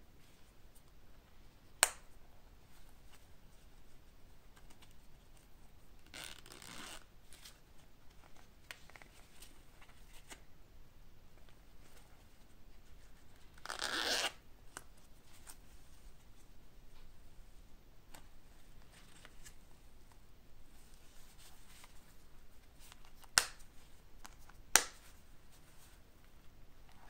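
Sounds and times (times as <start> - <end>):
zipper being pulled: 6.1 - 7.1, 13.6 - 14.4.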